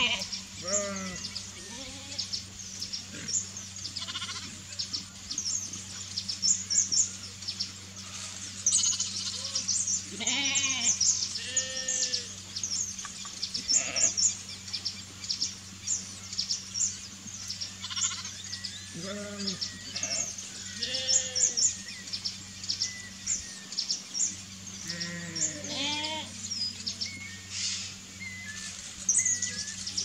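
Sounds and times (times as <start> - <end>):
sheep bleating: 0.0 - 2.3, 4.0 - 4.6, 8.8 - 12.3, 17.8 - 18.4, 19.0 - 21.6, 24.8 - 26.4
small birds chirping: 0.0 - 30.0.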